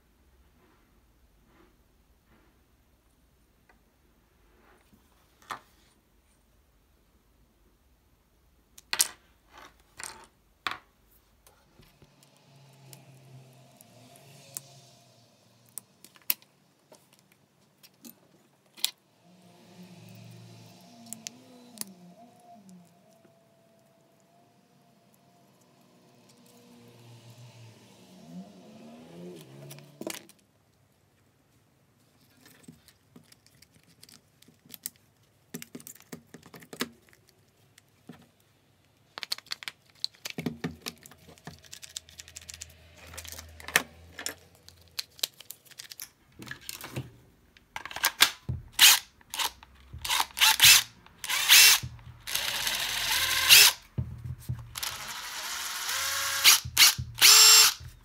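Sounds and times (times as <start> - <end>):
plastic parts clicking and knocking: 32.4 - 38.4, 39.0 - 55.3, 56.4 - 58.0
impact driver motor whirring: 48.5 - 53.9, 54.6 - 58.0.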